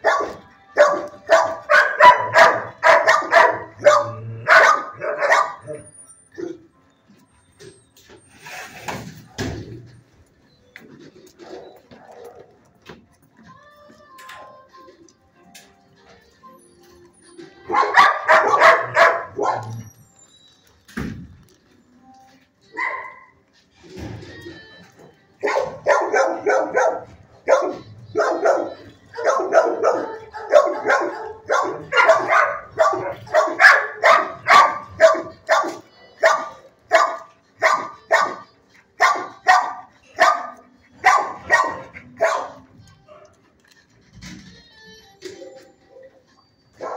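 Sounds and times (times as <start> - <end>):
dog barking: 0.0 - 6.7, 17.7 - 19.8, 22.8 - 23.3, 25.4 - 43.4.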